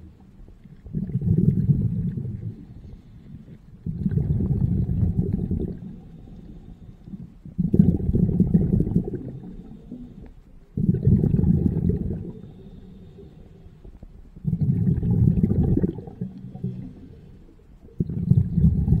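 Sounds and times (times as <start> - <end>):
diver exhaling bubbles underwater: 0.8 - 2.6, 3.8 - 6.1, 7.6 - 10.1, 10.8 - 12.7, 14.4 - 17.2, 17.8 - 19.0.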